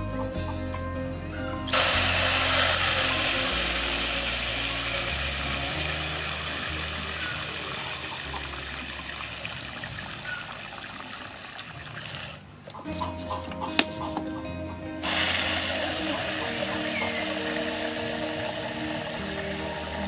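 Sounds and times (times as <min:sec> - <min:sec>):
background music: 0:00.0 - 0:10.2, 0:12.6 - 0:20.0
water jet hissing into cup: 0:01.7 - 0:08.6, 0:15.0 - 0:20.0.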